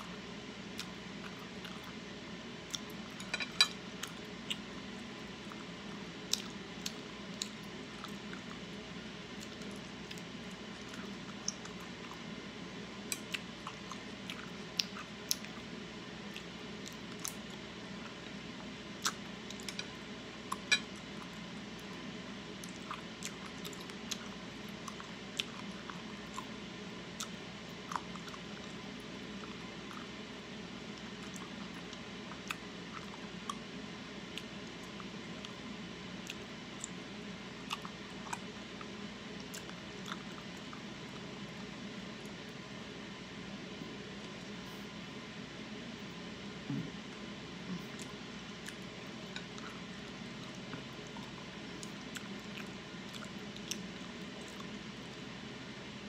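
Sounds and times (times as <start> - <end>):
close chewing: 47.8 - 55.2.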